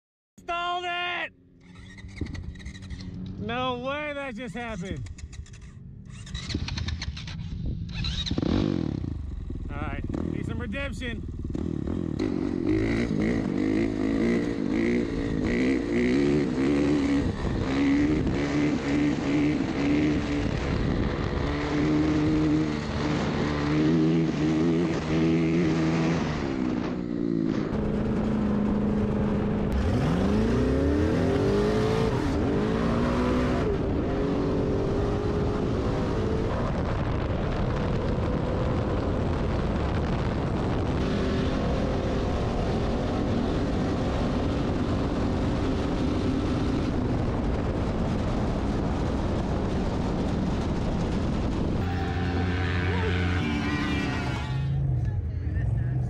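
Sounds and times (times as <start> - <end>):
engine revving: 1.6 - 56.0
engine accelerating through gears: 4.6 - 9.5, 11.4 - 54.6.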